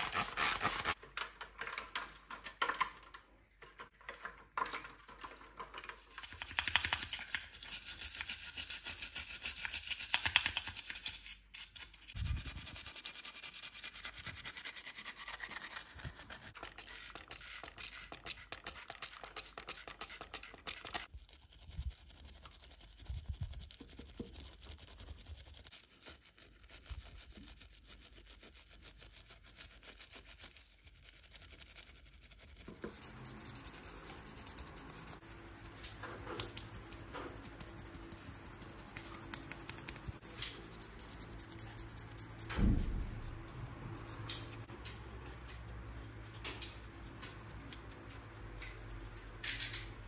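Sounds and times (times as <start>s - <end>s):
sanding sponge rubbing plastic: 0.0s - 1.0s, 6.2s - 11.3s, 12.1s - 50.0s
brush scrubbing metal part: 12.1s - 50.0s.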